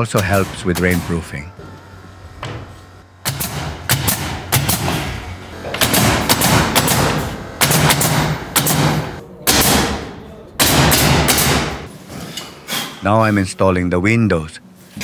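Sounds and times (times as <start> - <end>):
pneumatic nail gun firing: 0.0 - 1.4, 2.4 - 11.9.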